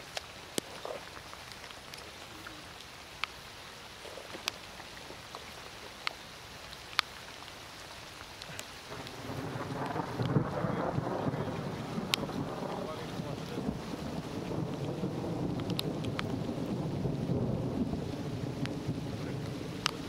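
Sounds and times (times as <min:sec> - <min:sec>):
light rain hiss: 0:00.0 - 0:20.0
raindrops ticking on camera: 0:00.0 - 0:20.0
wind buffeting microphone: 0:08.9 - 0:20.0.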